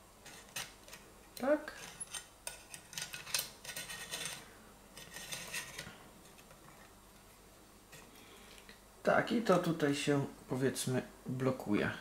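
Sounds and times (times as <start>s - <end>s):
metal pot support clicking and scraping: 1.8s - 6.9s.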